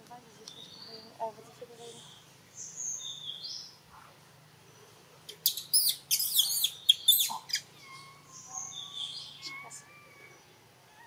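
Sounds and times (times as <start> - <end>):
young monkey screaming: 5.4 - 10.4.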